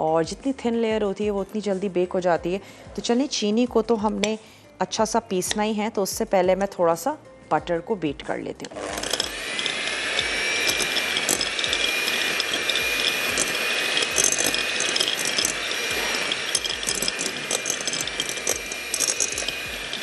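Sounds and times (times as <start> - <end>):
electric mixer whining: 8.6 - 20.0.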